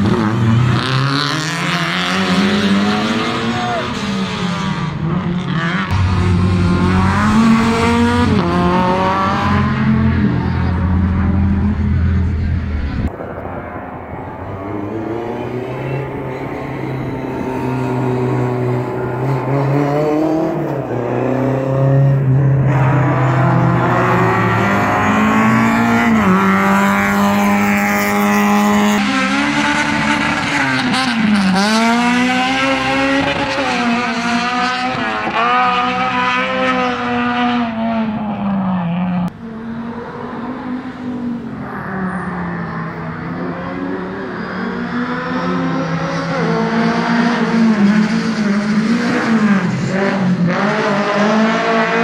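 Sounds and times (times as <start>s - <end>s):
rally car engines revving: 0.0s - 52.0s
tyre squeal: 44.1s - 45.5s.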